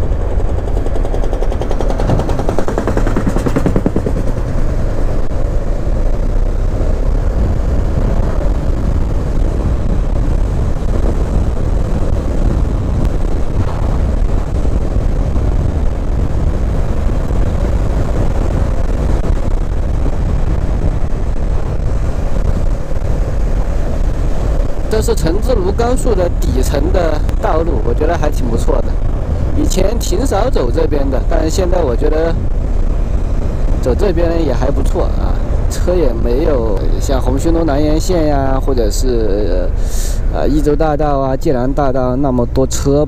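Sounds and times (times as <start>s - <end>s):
motorcycle engine running: 0.0s - 25.8s
road and air rumble: 0.0s - 43.0s.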